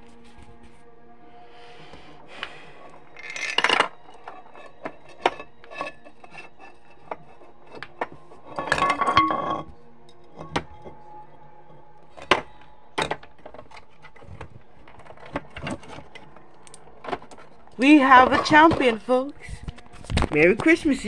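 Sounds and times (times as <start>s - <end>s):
marbles rolling through metal tube: 3.0s - 10.9s, 13.4s - 19.2s.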